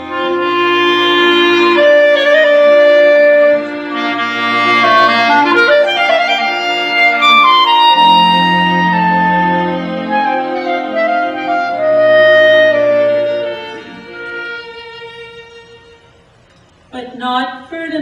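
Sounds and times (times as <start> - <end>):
small orchestra classical music: 0.0 - 16.8.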